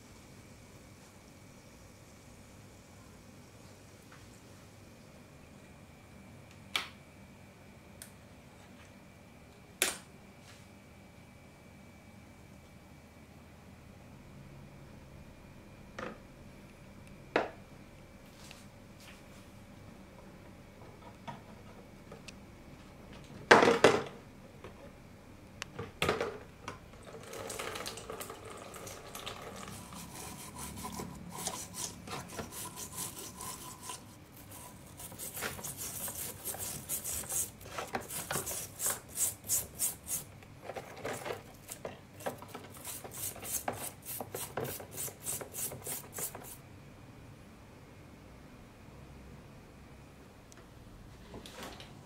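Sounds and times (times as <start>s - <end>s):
metal scraper scraping rust: 29.7s - 40.3s.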